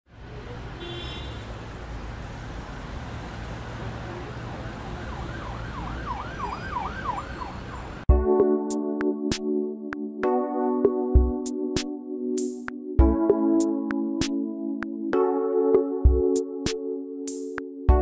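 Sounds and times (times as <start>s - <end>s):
siren sweeping up and down: 4.6s - 8.0s.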